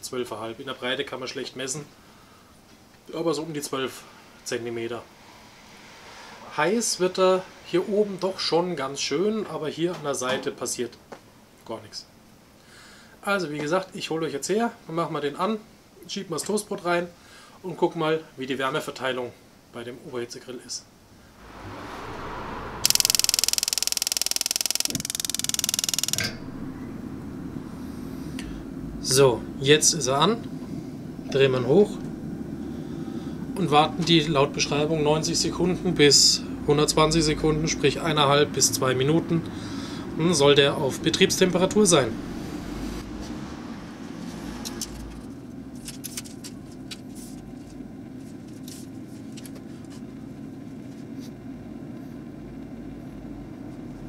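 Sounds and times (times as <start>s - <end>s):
gas burner rushing: 21.2s - 36.8s
igniter clicking rapidly: 22.9s - 26.3s.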